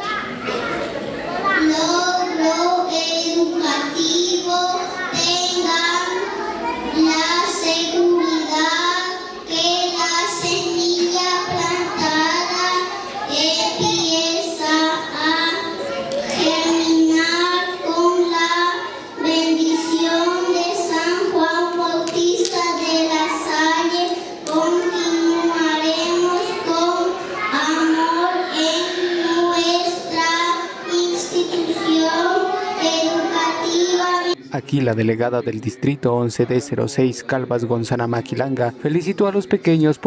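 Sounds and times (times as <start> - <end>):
girl singing into microphone: 7.3 - 15.7.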